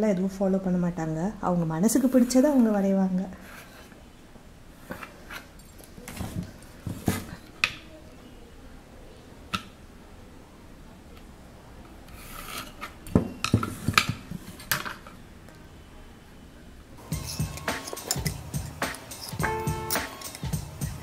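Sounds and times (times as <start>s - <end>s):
pencil scraping: 12.1s - 12.9s.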